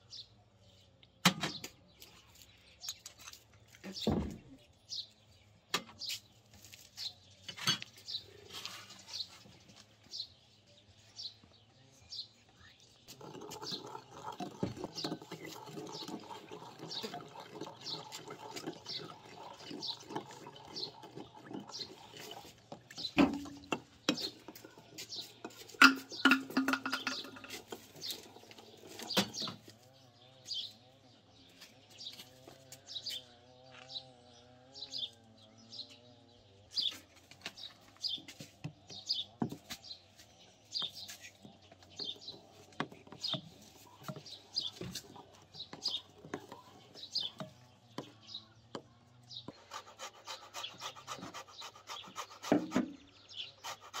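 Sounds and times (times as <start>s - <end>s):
small bird chirping: 0.0s - 54.0s
fruit rasping on a grater: 49.5s - 54.0s.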